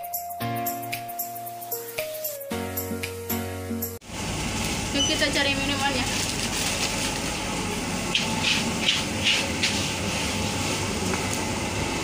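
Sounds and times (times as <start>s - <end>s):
store background hum: 2.9s - 12.0s.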